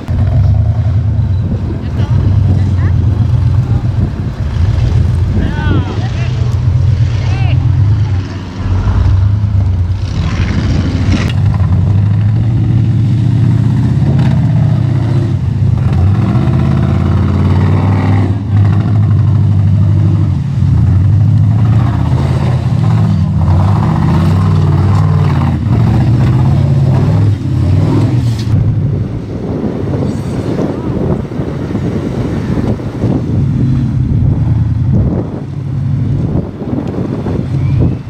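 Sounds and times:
off-road buggy engines revving: 0.0 - 38.0.

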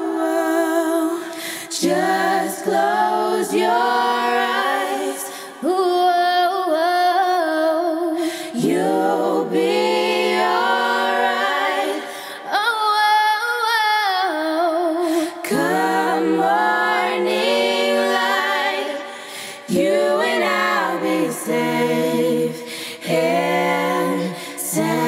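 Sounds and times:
girls singing in harmony: 0.0 - 25.0.

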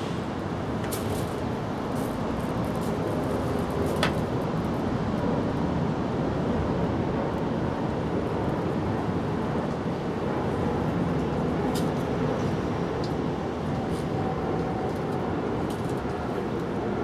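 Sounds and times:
outdoor rumbling hiss: 0.0 - 3.0.

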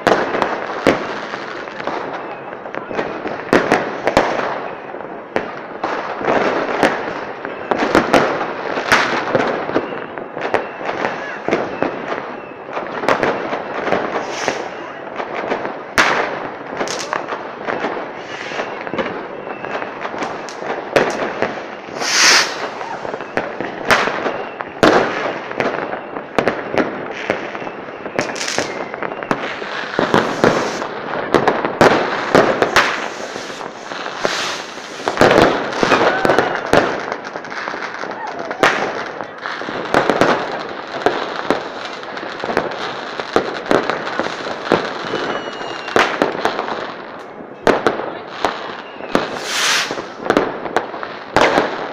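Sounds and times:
fireworks bangs and crackling: 0.0 - 51.9.

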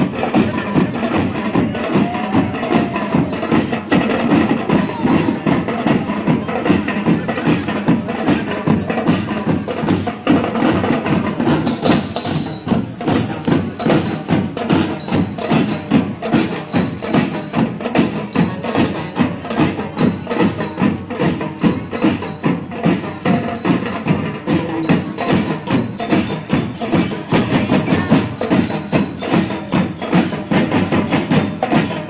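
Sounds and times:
drums beating driving rhythm: 0.0 - 32.0
bell lyres ringing high notes: 11.6 - 32.0.

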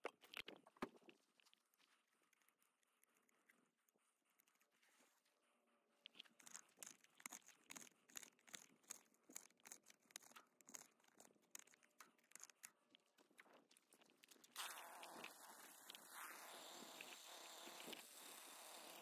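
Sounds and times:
trimmer line being wound: 6.2 - 12.7, 14.5 - 19.0.

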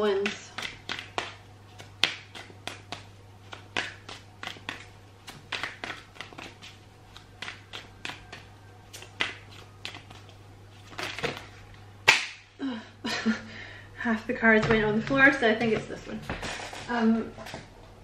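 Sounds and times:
cards shuffling: 0.5 - 12.2.

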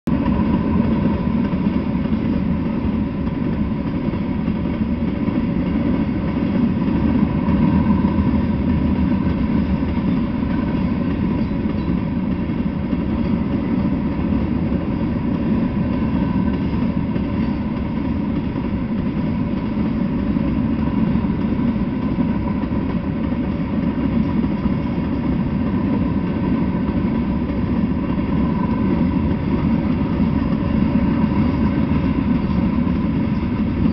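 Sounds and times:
train wheels rumbling on rail: 0.0 - 33.9.

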